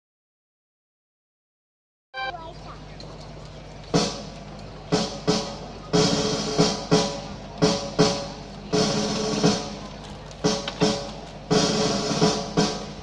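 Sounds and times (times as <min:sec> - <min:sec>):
loud drum strikes: 0:03.9 - 0:13.0.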